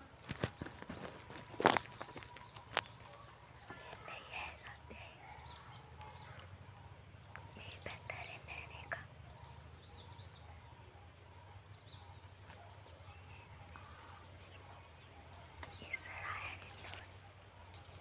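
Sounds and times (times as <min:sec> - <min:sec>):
small birds chirping: 0:00.0 - 0:18.0.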